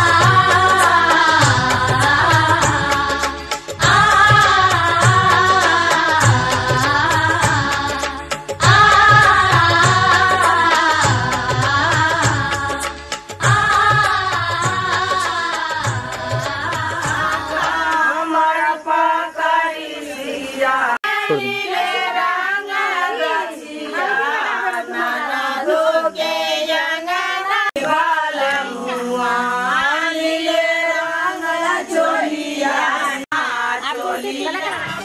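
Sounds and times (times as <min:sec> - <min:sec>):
women singing folk song: 0:00.0 - 0:35.0.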